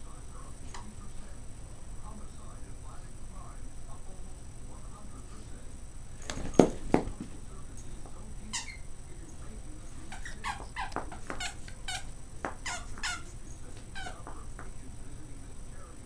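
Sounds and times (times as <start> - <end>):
squeaky toy squeaking: 10.1 - 13.3, 13.9 - 14.2.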